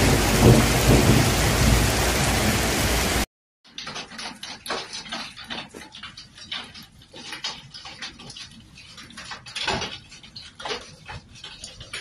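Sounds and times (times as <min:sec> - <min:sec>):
heavy hail on pavement: 0:00.0 - 0:03.3
sparse hailstones ticking: 0:00.0 - 0:12.0.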